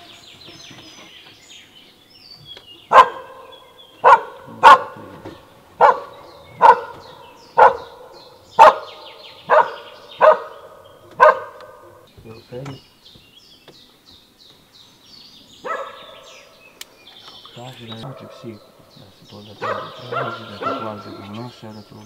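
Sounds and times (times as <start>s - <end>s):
faint bird chirps: 0.0s - 22.0s
dog barking: 2.9s - 5.1s, 5.8s - 12.0s, 15.6s - 16.4s, 18.0s - 18.5s, 19.6s - 21.3s.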